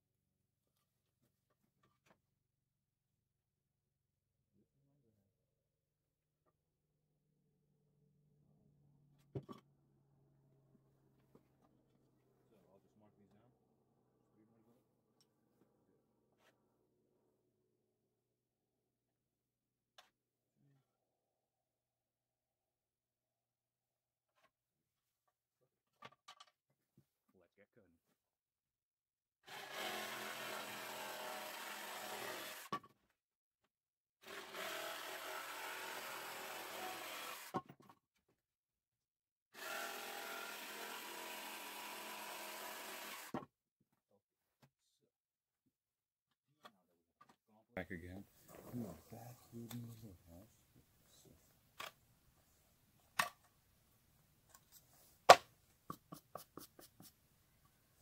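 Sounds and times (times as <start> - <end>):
jigsaw cutting wood: 29.4 - 32.8, 34.2 - 37.6, 39.5 - 43.4.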